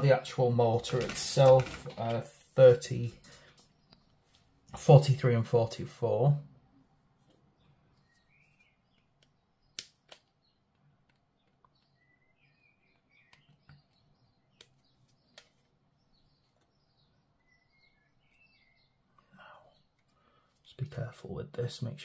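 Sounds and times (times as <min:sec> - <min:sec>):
faint bird chirps: 0:07.6 - 0:09.8, 0:11.4 - 0:20.5.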